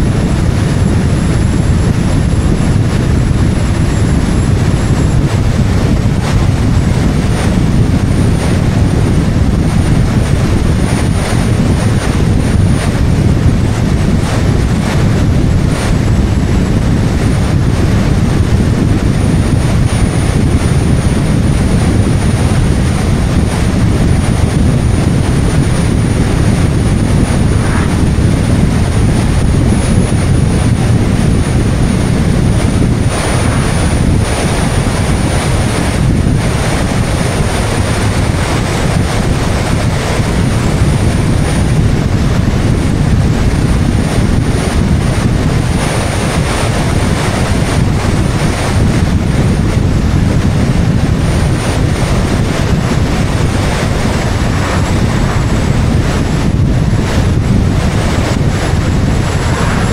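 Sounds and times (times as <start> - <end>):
road and tyre noise: 0.0 - 47.1, 51.2 - 59.9
faint high whine: 0.0 - 50.1, 50.7 - 59.9
wind rushing over microphone: 0.0 - 59.9.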